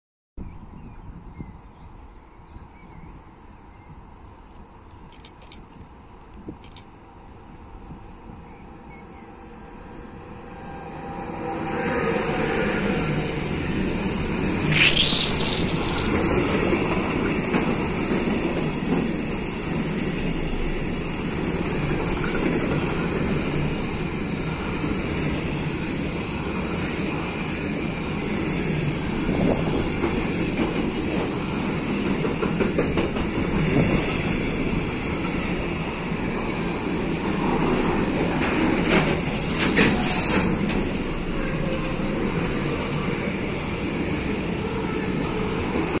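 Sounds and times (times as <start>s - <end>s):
train wheels rumbling on track: 3.7s - 46.0s
sharp high-pitched noise: 14.1s - 17.3s.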